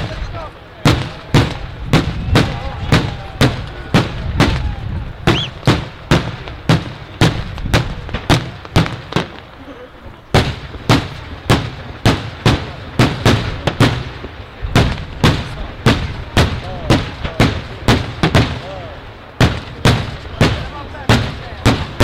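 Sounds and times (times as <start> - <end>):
loud firework bangs: 0.0 - 22.0.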